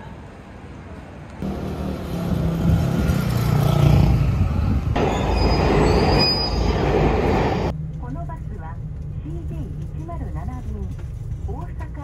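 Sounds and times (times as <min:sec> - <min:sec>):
train at station platform: 0:00.0 - 0:12.0
train rumbling on rails: 0:00.2 - 0:12.0
high-pitched squeal: 0:05.0 - 0:07.6.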